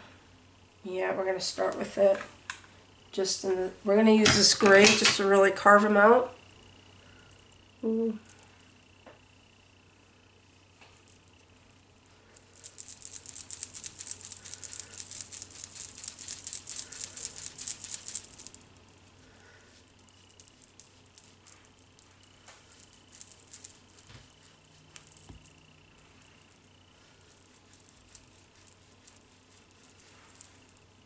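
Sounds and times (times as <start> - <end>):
soft brushing strokes: 12.0 - 31.0
makeup brush scratching: 12.7 - 18.5, 20.0 - 25.5, 26.9 - 30.8.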